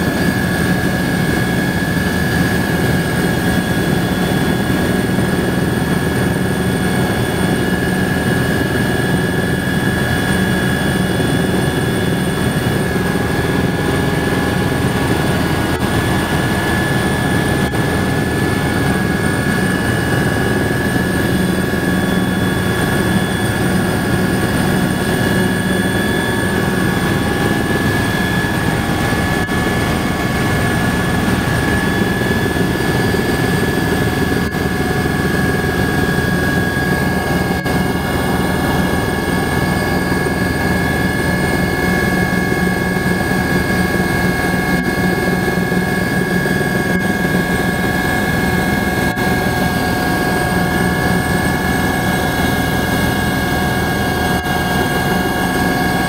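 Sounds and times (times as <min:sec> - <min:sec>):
helicopter engine and rotor noise: 0:00.0 - 0:56.0
high engine whine: 0:00.0 - 0:56.0.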